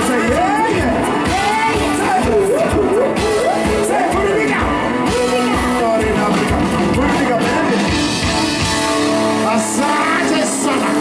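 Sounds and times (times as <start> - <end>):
acoustic guitar: 0.0 - 11.0
live band music: 0.0 - 11.0
steady drumbeat: 0.0 - 11.0.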